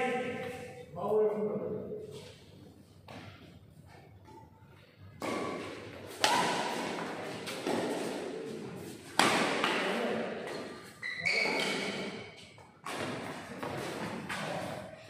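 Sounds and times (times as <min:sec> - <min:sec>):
rackets hitting shuttlecock: 0:05.2 - 0:10.7, 0:11.3 - 0:14.8.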